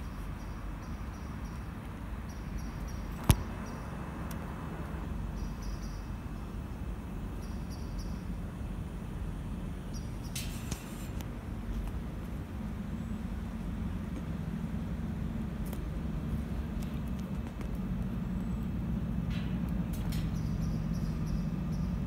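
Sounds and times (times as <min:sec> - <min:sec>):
short hiss: 0:10.4 - 0:11.2.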